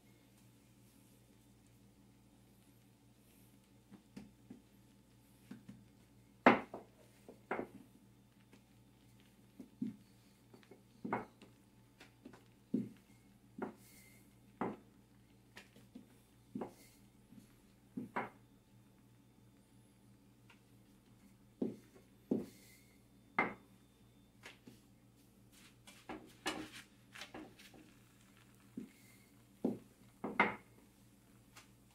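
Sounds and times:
faint steady hum: 0.0 - 31.9
rolling pin knocking on countertop: 6.5 - 7.8, 14.6 - 14.8, 23.4 - 23.6, 29.6 - 30.7.

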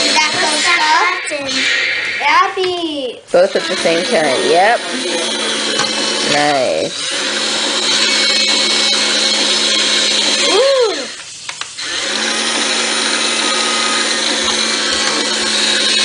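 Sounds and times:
short rising and falling tone: 0.0 - 4.6
toy electric motors whirring: 3.4 - 16.0.

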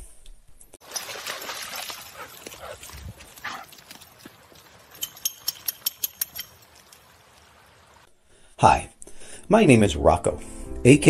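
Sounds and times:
dog scuffing on dirt trail: 0.9 - 7.0.

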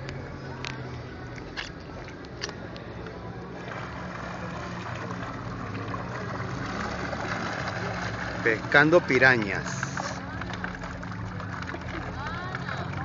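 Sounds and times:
fish splashing in water: 3.5 - 12.8.

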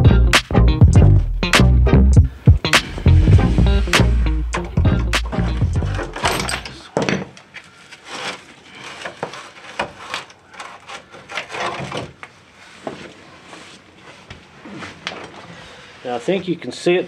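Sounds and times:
metal scraping and knocking on metal: 4.5 - 7.4.

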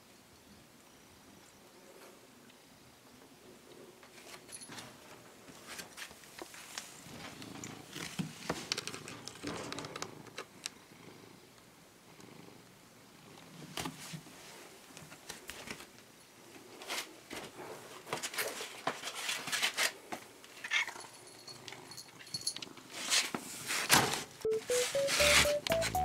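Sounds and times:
soft clicks and rustles: 3.7 - 10.8.

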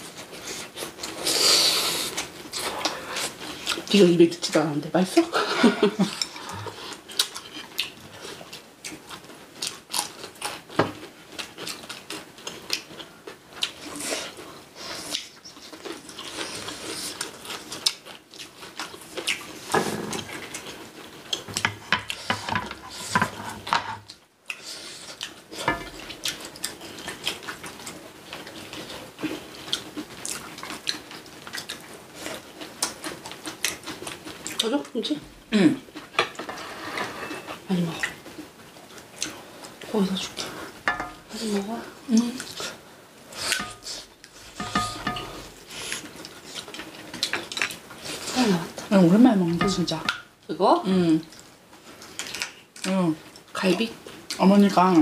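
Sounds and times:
chewing and mouth sounds: 6.0 - 22.3, 24.1 - 34.7
cutlery clinking on dishes: 40.9 - 41.2, 43.5 - 44.0, 44.6 - 45.5, 49.6 - 50.2.

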